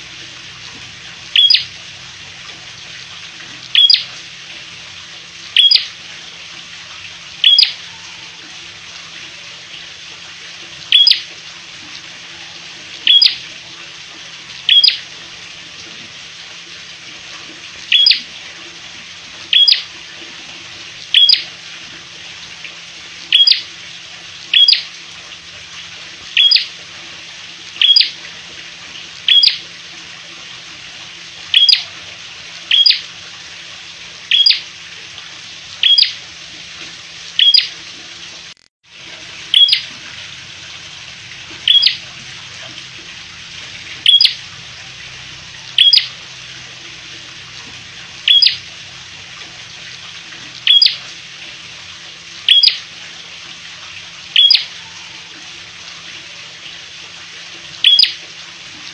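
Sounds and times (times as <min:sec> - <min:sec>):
songbird chip notes: 0:01.4 - 0:01.7, 0:03.8 - 0:04.1, 0:07.4 - 0:07.8, 0:10.9 - 0:11.2, 0:13.1 - 0:13.4, 0:19.5 - 0:19.8, 0:29.3 - 0:29.6, 0:48.3 - 0:48.6.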